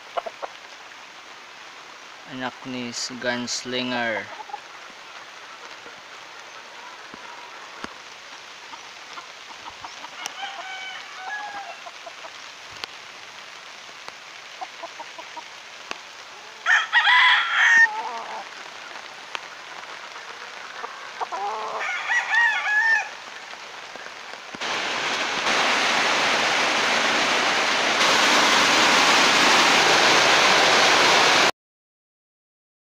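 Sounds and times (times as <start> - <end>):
heavy rain hissing: 0.0 - 31.5
roosters crowing: 9.9 - 12.0, 16.4 - 18.5, 20.8 - 23.2.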